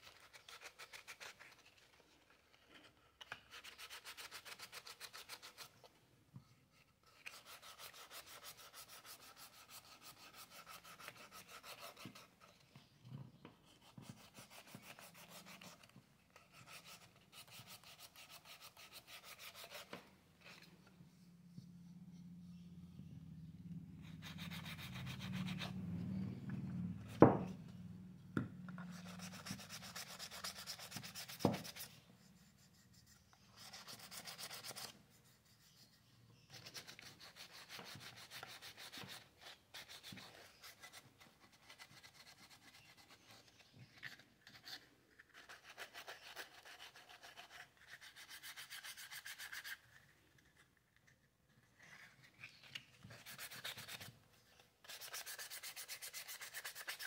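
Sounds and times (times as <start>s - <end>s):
scratchy sanding strokes on wood: 7.3s - 12.2s, 24.1s - 25.7s, 54.8s - 57.0s.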